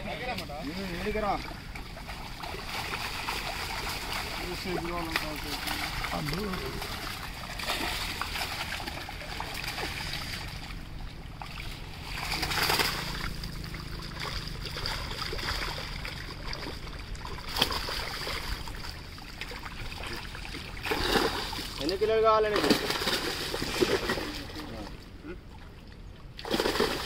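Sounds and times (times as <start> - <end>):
water splashing and sloshing: 0.0 - 27.0.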